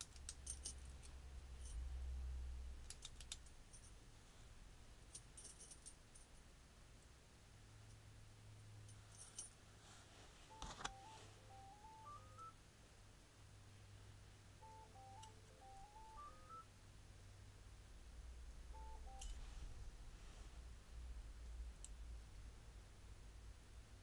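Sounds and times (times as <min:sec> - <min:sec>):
faint low hum: 0:00.0 - 0:24.0
electronic beeping tune: 0:10.5 - 0:12.6, 0:14.6 - 0:16.7, 0:18.7 - 0:19.4.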